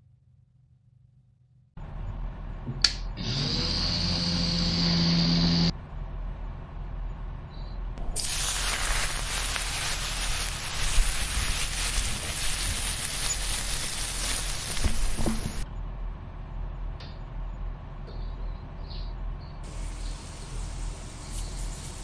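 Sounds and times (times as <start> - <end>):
mini chopper motor running: 3.2 - 5.7
sauce crackling in pan: 8.1 - 15.6.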